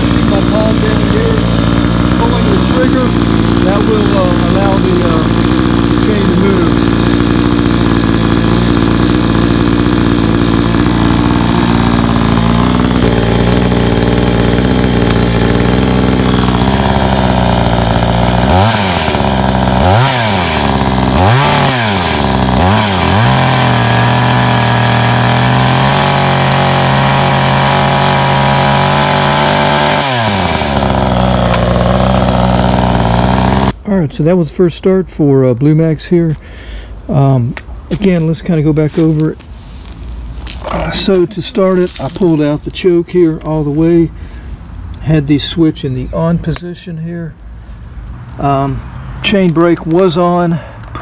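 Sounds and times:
chainsaw idling and revving: 0.0 - 33.8, 40.5 - 42.7.

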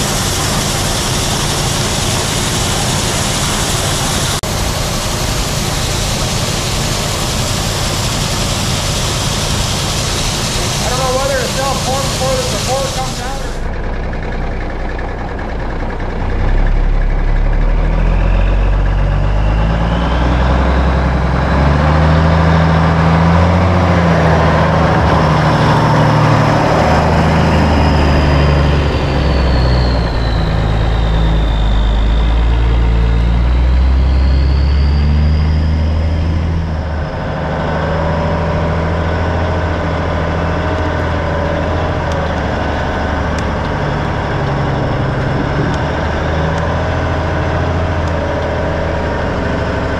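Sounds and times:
high engine whine: 0.0 - 49.9
truck diesel engine: 0.0 - 49.9.

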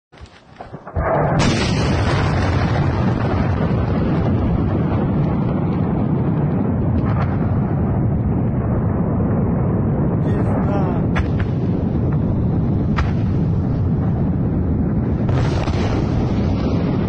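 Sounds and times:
deep explosion rumble: 0.6 - 17.0
sharp secondary blast crack: 0.7 - 5.0, 12.8 - 14.1, 15.2 - 17.0.

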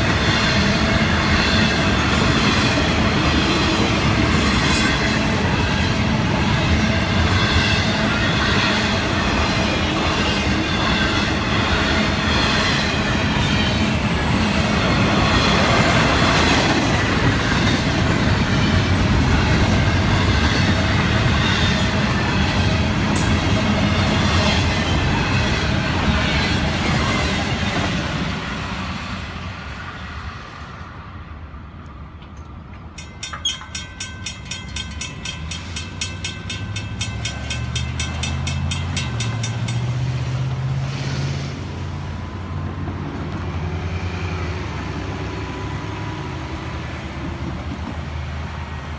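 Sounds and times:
freight train wheels clattering: 32.1 - 40.6
crossing bell ringing: 32.3 - 40.5.

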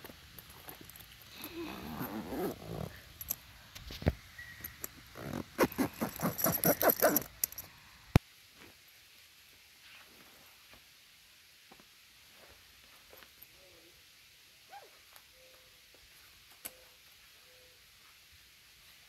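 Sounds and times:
zipper being pulled: 1.3 - 3.0, 5.1 - 7.6.

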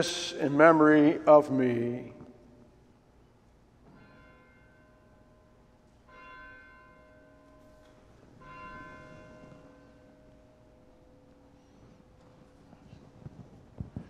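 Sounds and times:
altar bell ringing: 3.9 - 12.3.

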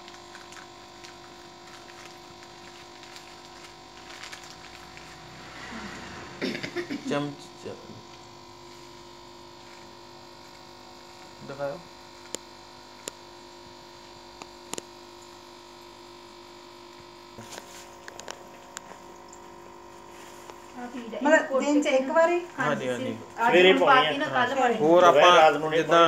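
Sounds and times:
aquarium pump humming: 0.0 - 26.0.

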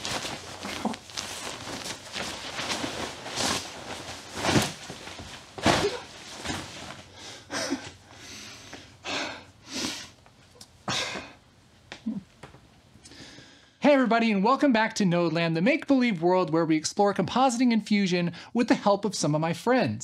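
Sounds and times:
rain jacket fabric swishing: 0.0 - 7.1.

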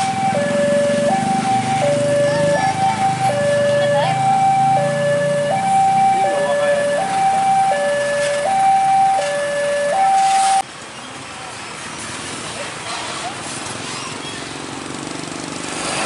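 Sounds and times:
two-tone electronic alarm: 0.0 - 10.6
truck engine rumble: 0.0 - 15.8.

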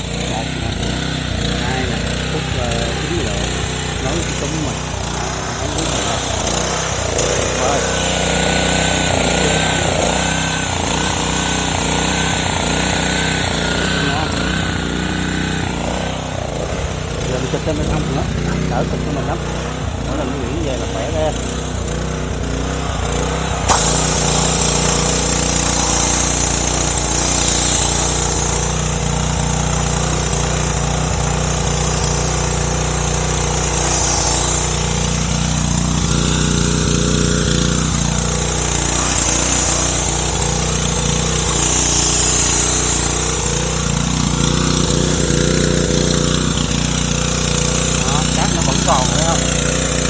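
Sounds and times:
pressure washer spraying water: 0.0 - 50.0
pressure washer click: 22.6 - 50.0.

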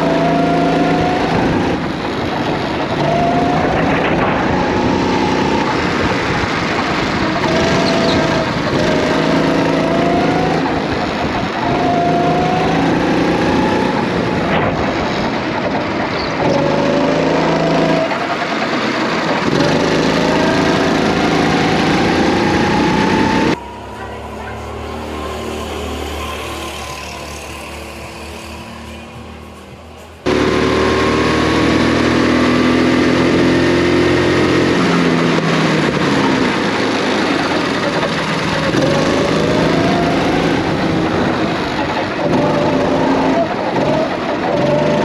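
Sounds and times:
kart engine revving: 0.0 - 45.0.

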